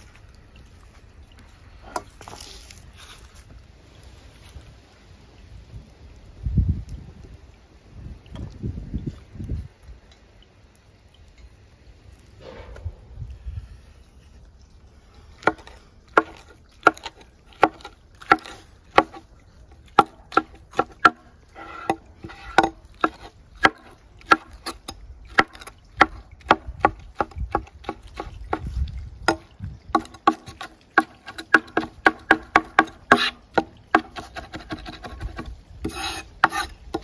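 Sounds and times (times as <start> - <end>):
knife chopping on wooden board: 20.0 - 21.2, 21.8 - 28.7, 30.0 - 37.0.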